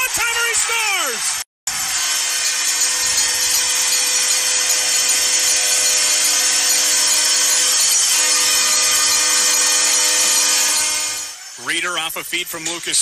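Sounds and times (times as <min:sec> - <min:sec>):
crowd cheering: 0:00.0 - 0:03.9.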